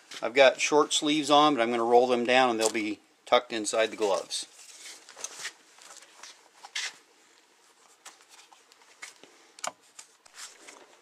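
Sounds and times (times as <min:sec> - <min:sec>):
fabric gloves rustling: 0:03.9 - 0:11.0.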